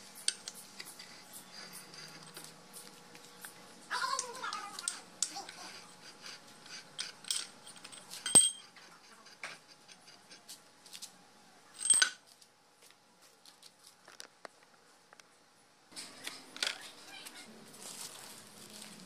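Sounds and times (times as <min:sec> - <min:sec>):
metal clinks and knocks: 0:07.0 - 0:08.8, 0:11.8 - 0:12.2.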